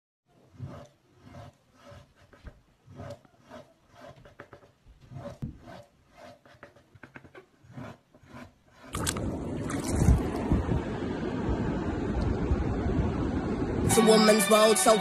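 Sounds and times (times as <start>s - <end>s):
carving tool scraping clay: 0.3s - 9.2s.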